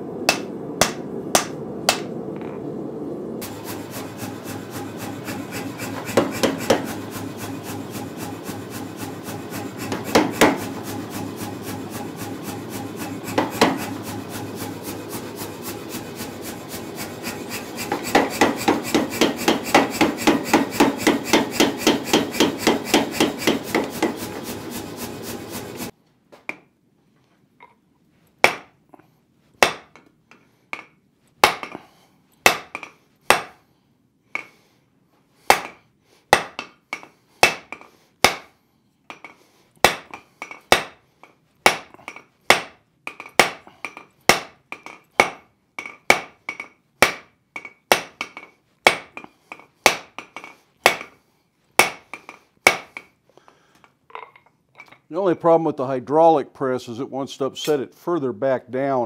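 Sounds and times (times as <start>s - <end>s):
hydraulic press pulsing: 3.4s - 25.9s.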